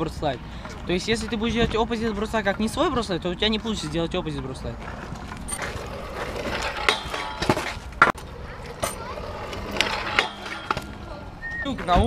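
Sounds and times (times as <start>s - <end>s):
scooter rolling on asphalt: 4.8s - 12.0s
scooter deck clacking on rail: 5.5s - 11.1s.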